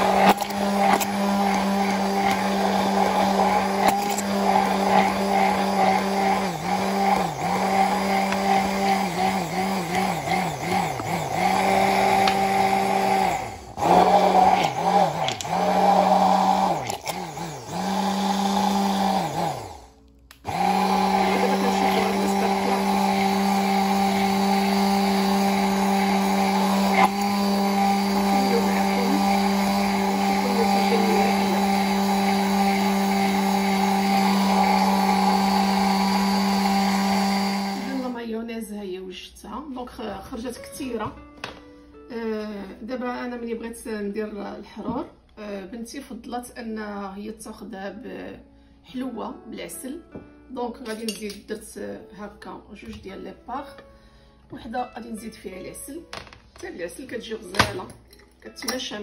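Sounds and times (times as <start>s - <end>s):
stick blender motor running: 0.0s - 38.2s.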